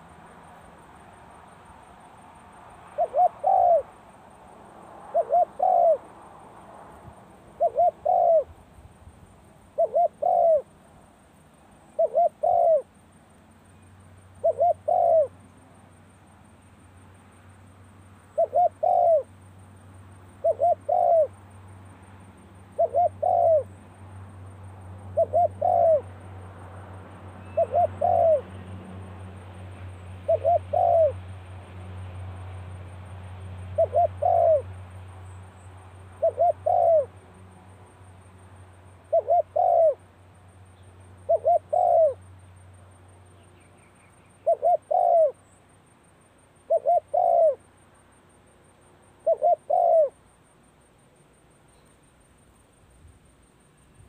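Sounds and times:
dove cooing: 0:02.9 - 0:03.9, 0:05.1 - 0:06.1, 0:07.6 - 0:08.5, 0:09.7 - 0:10.7, 0:11.9 - 0:12.9, 0:14.4 - 0:15.3, 0:18.3 - 0:19.3, 0:20.4 - 0:21.4, 0:22.8 - 0:23.7, 0:25.1 - 0:26.1, 0:27.4 - 0:28.5, 0:30.2 - 0:31.2, 0:33.7 - 0:34.7, 0:36.2 - 0:37.1, 0:39.0 - 0:40.0, 0:41.2 - 0:42.2, 0:44.4 - 0:45.4, 0:46.7 - 0:47.6, 0:49.2 - 0:50.2.

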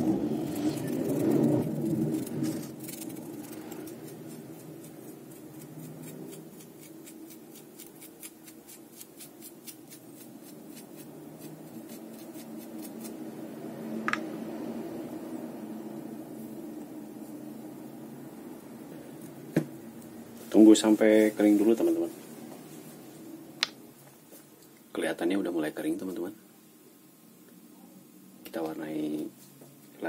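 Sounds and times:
low hum: 0:00.0 - 0:06.6, 0:10.6 - 0:20.4
paintbrush scratchy strokes: 0:00.0 - 0:13.3.

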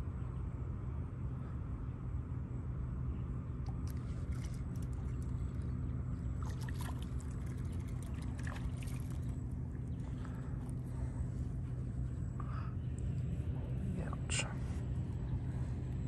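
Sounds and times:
steady low hum: 0:00.0 - 0:16.0
water splashing and trickling: 0:03.7 - 0:09.6.

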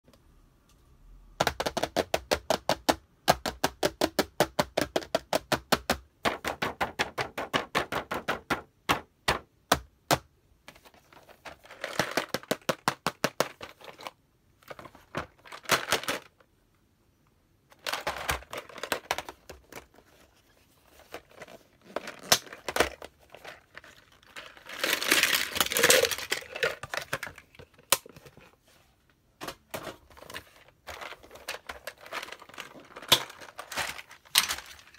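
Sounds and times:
rapid tapping on plastic: 0:01.4 - 0:10.2, 0:11.8 - 0:13.7
plastic scraping and crinkling: 0:17.8 - 0:28.7, 0:29.4 - 0:34.9.

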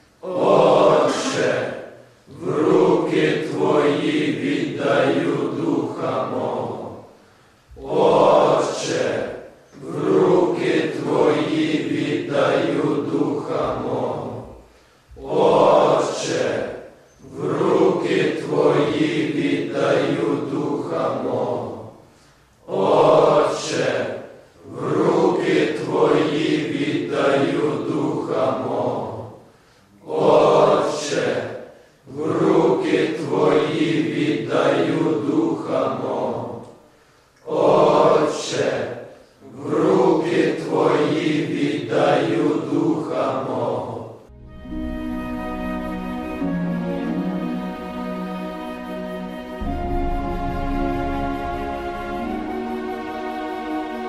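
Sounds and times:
group of voices chanting: 0:00.2 - 0:07.1, 0:07.7 - 0:22.0, 0:22.6 - 0:36.7, 0:37.4 - 0:44.3.

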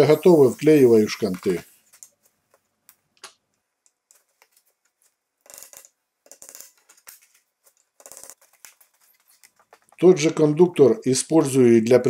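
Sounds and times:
wooden dowels clicking and tapping: 0:01.9 - 0:10.5.

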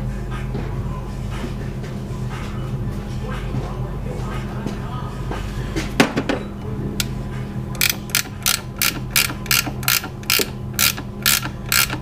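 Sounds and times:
ratchet wrench clicking: 0:07.8 - 0:12.0.

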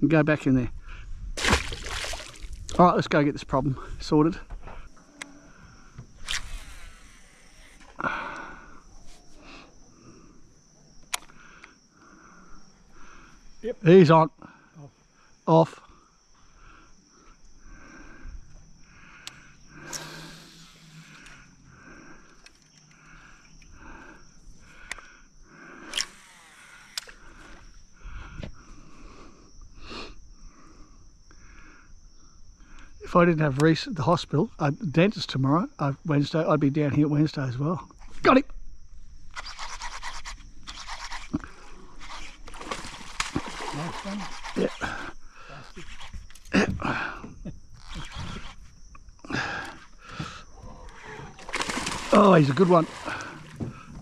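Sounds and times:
high-pitched insect drone: 0:03.7 - 0:31.4, 0:38.8 - 0:54.0.

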